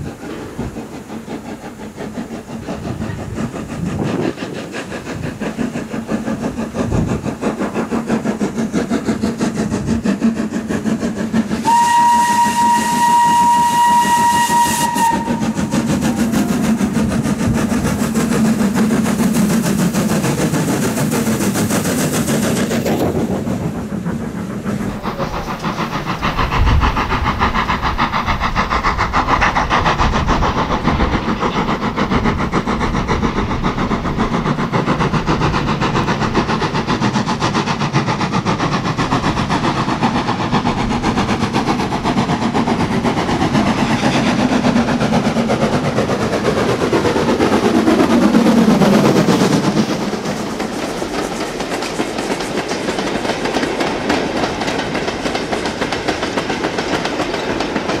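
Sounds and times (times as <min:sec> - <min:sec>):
rhythmic train rumble: 0:00.0 - 0:58.0
steam locomotive passing: 0:00.0 - 0:58.0
steam whistle blast: 0:11.6 - 0:16.7.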